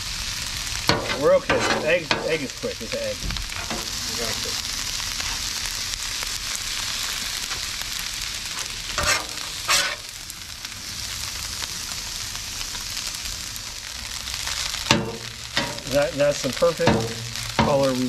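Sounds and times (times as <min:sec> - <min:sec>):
food sizzling on a griddle: 0:00.0 - 0:18.0
metal spatula scraping griddle: 0:00.8 - 0:04.4, 0:08.6 - 0:10.1, 0:14.3 - 0:18.0.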